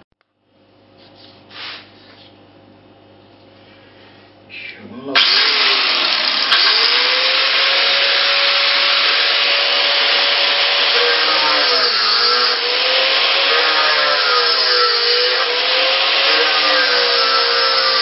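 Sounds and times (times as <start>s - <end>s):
angle grinder grinding mortar: 5.2s - 18.0s.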